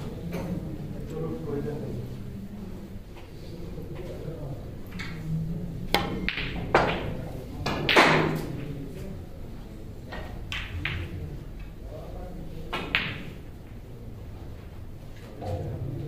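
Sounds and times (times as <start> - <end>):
snooker cue and ball clicks: 5.9 - 8.7, 10.1 - 11.7, 12.7 - 13.8.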